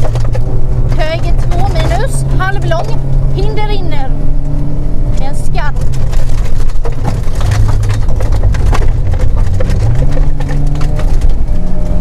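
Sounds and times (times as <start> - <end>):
gravel knocking against car: 0.0 - 3.0, 5.6 - 12.0
rally car engine: 0.0 - 12.0.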